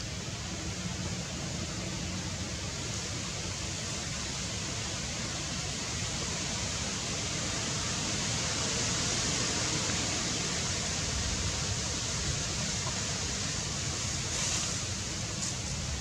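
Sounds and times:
steady outdoor hiss: 0.0s - 16.0s.

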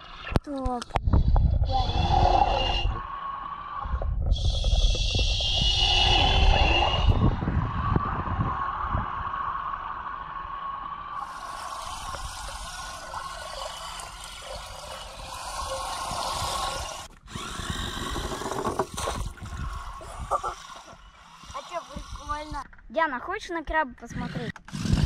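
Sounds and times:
toy car electric motor whining: 11.2s - 22.6s, 24.2s - 25.0s.

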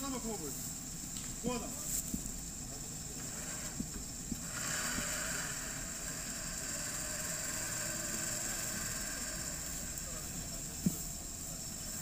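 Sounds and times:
off-road vehicle engine revving: 3.2s - 12.0s.

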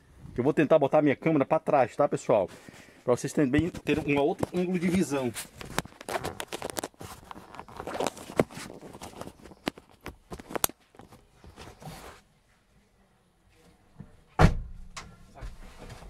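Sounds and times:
camera handling clicks and rustles: 3.7s - 11.3s.

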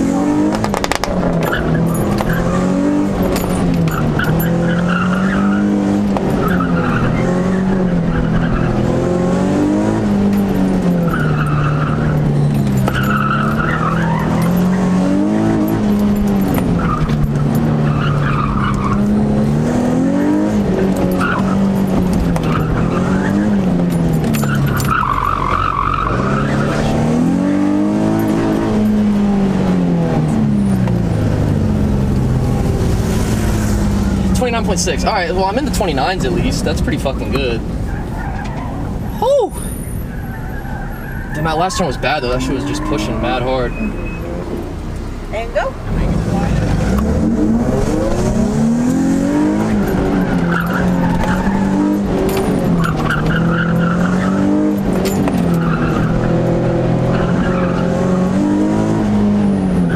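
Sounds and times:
car engine revving: 0.0s - 59.9s
tyre squeal: 1.4s - 9.0s, 10.2s - 19.4s, 20.0s - 29.0s, 37.2s - 45.5s, 49.2s - 58.7s.

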